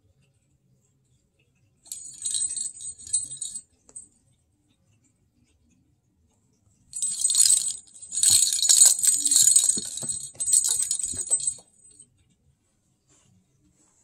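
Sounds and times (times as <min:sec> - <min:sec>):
small bell jingling: 0:01.9 - 0:04.0, 0:07.0 - 0:12.0.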